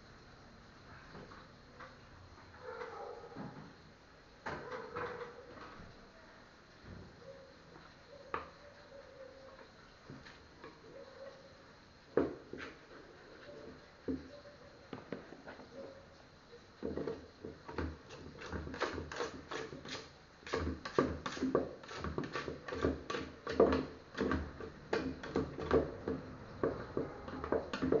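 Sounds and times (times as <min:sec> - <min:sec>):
utensil scraping metal pot: 0:18.0 - 0:26.0.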